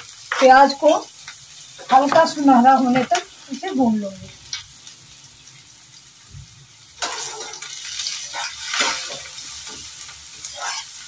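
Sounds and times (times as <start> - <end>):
onions sizzling in a pan: 0.0 - 11.0
spatula scraping a pan: 7.0 - 11.0.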